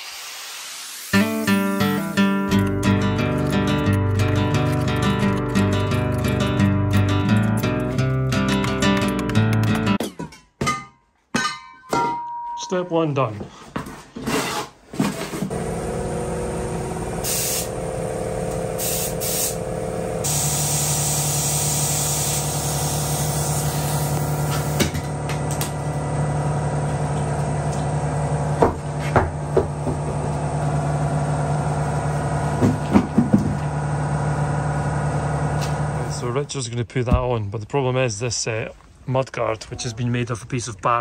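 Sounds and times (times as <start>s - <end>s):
compressed air hissing into tyre: 0.0s - 2.4s, 17.2s - 17.8s, 18.8s - 19.6s, 20.2s - 24.8s
air compressor humming: 0.0s - 7.9s, 15.5s - 36.5s.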